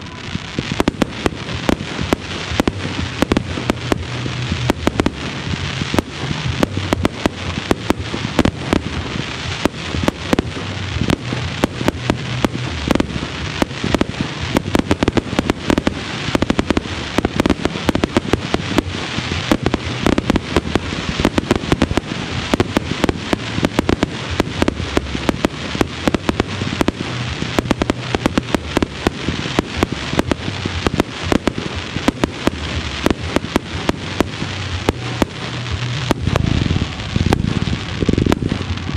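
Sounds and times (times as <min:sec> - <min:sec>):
fireworks barrage: 0:00.0 - 0:38.9.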